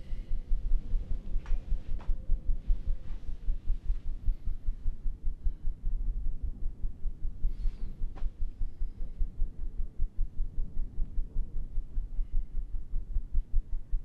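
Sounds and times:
faint steady hum: 0.0 - 14.0
low throbbing rumble: 0.0 - 14.0.

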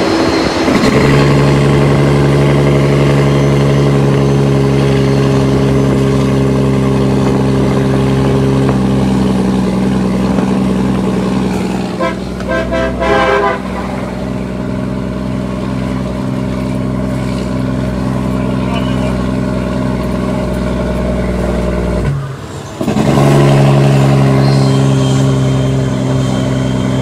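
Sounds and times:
diesel truck engine running: 0.0 - 27.0
vehicle horn short toots: 12.0 - 13.9.

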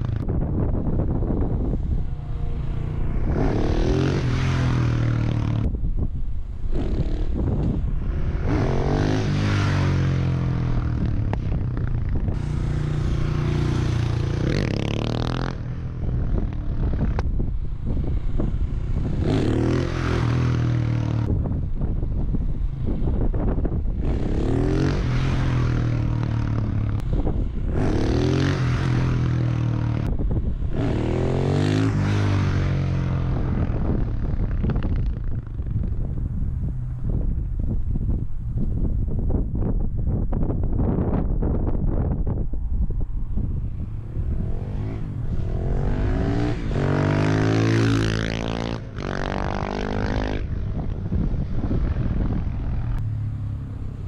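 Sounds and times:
wind buffeting microphone: 0.0 - 54.0
motorcycle engine revving: 1.2 - 5.8, 6.6 - 17.2, 17.9 - 21.4, 23.9 - 35.8, 43.8 - 54.0.

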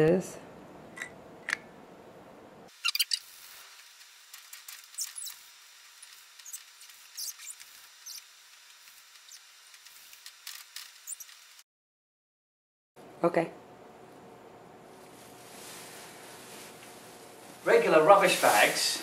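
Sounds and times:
fingertip squeaking on board: 2.8 - 3.2, 4.9 - 5.4, 6.4 - 8.3, 11.0 - 11.4.

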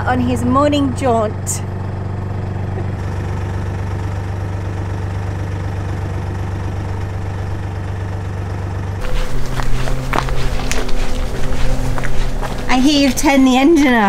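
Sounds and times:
boat engine idling: 0.0 - 14.0.

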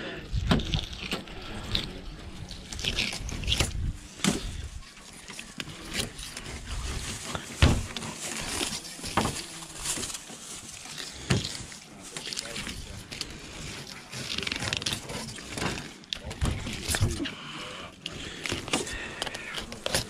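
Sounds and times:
knife slicing and scraping fish: 0.4 - 17.2.

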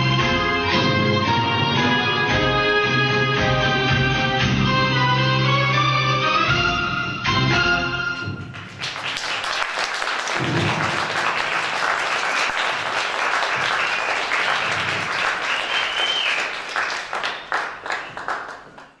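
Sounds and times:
audience applauding: 8.5 - 19.0.

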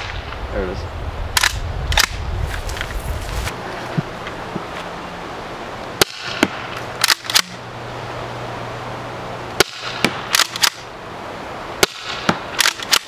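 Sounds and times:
launcher firing sharp pops: 6.0 - 7.6, 9.6 - 10.9, 11.8 - 13.0.

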